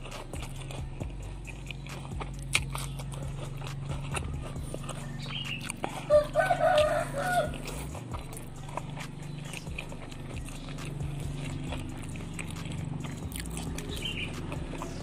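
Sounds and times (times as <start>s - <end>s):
faint eating clicks: 0.0s - 15.0s
rooster crowing: 4.9s - 7.8s.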